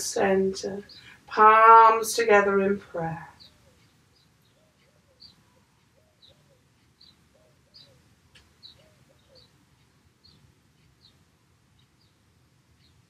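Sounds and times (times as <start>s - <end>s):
small bird chirping: 0.8s - 1.2s, 3.2s - 13.0s
dove cooing: 8.7s - 9.5s.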